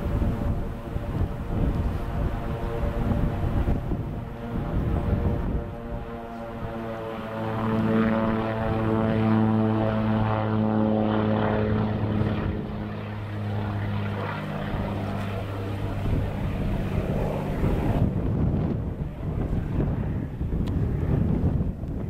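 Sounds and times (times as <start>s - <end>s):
propeller plane engine droning: 0.0s - 22.0s
rushing wind-like noise: 0.0s - 22.0s.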